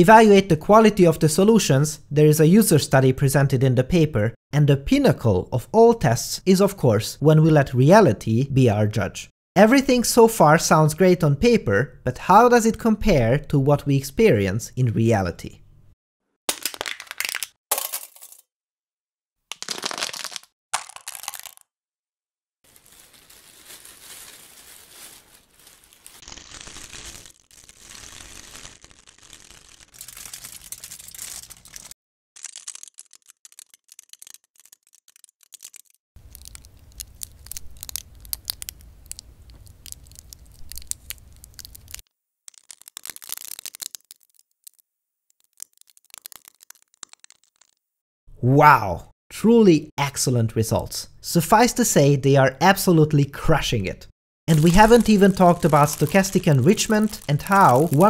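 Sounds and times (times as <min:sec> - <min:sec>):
can being crushed: 0:16.5 - 0:18.4, 0:19.5 - 0:21.6, 0:32.6 - 0:44.8, 0:45.4 - 0:47.8, 0:54.5 - 0:58.0
aluminium foil crumpling: 0:19.5 - 0:21.6, 0:22.6 - 0:47.8, 0:54.5 - 0:58.0.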